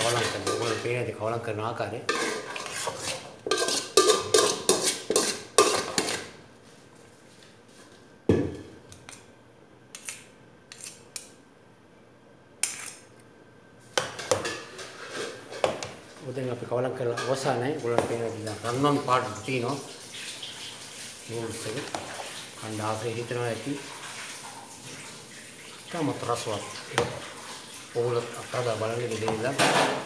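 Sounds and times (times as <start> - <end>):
metal spoon scraping a pot: 0.0 - 1.0, 2.1 - 6.3, 14.5 - 15.7.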